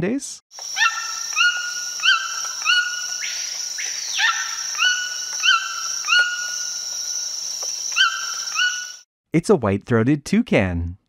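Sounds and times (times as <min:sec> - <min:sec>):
toucan yelping calls: 0:00.6 - 0:07.0, 0:07.8 - 0:09.0.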